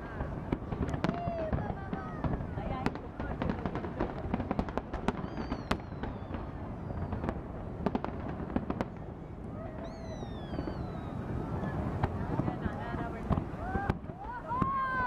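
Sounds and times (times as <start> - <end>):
fireworks bangs and crackling: 0.0 - 15.0
falling firework whistles: 5.0 - 12.2.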